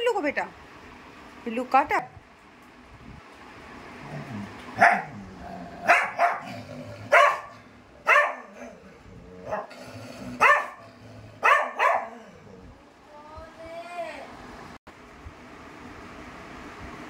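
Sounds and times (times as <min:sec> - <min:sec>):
dog barking: 0:04.8 - 0:05.2, 0:05.8 - 0:06.5, 0:07.1 - 0:08.8, 0:09.4 - 0:09.7, 0:10.4 - 0:12.3.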